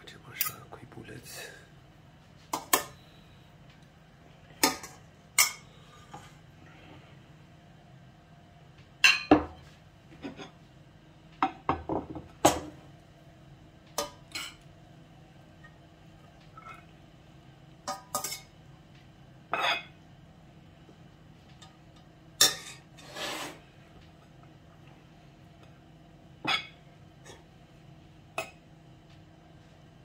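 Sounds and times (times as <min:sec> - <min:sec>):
plates knocking on wooden board: 0:11.4 - 0:12.6.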